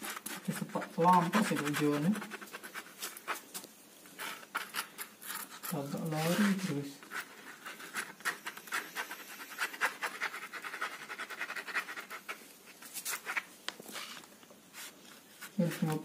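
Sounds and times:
pen scratching on carpet: 0.0s - 3.6s, 4.2s - 16.0s.

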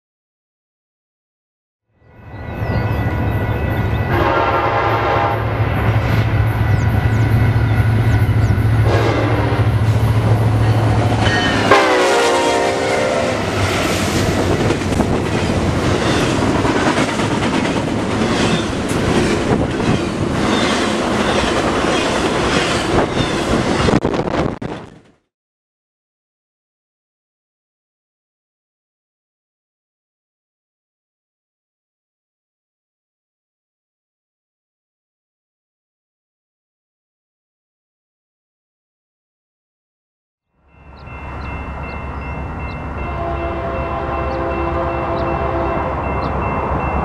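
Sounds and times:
locomotive horn blasts: 4.0s - 5.6s, 8.8s - 10.4s, 11.2s - 13.7s, 43.0s - 46.2s
train wheels clacking over rails: 13.5s - 24.0s.

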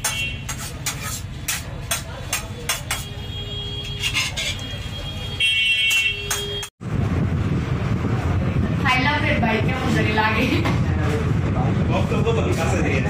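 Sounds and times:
low rumble: 6.8s - 13.0s.

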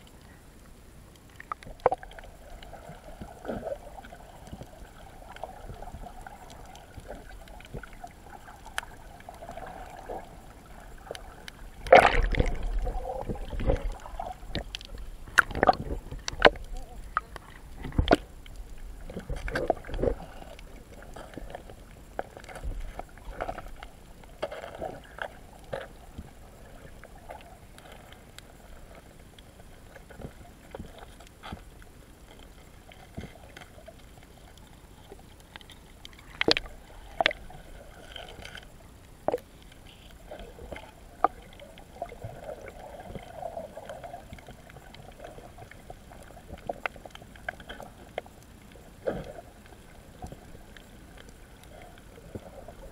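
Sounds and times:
underwater water sloshing: 0.0s - 52.9s
sharp underwater clicks and knocks: 11.1s - 26.4s, 27.3s - 52.5s.

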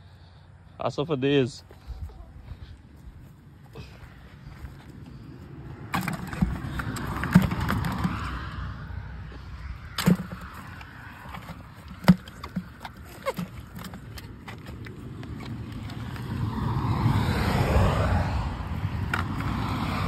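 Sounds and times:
fish knocking in a plastic bucket: 5.8s - 8.4s, 9.9s - 16.2s.

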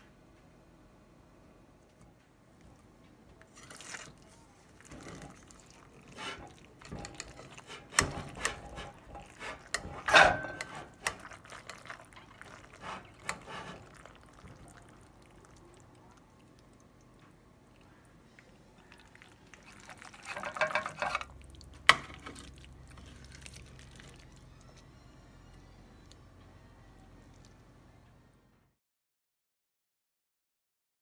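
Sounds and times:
soft sticky scooping: 2.6s - 24.9s
utensil clinking on dish: 5.0s - 14.0s, 19.6s - 21.3s.

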